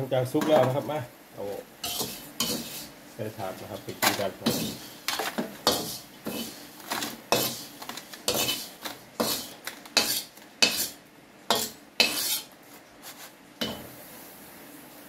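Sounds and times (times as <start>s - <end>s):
utensil scraping a dry wok: 1.8s - 3.0s, 3.6s - 13.9s.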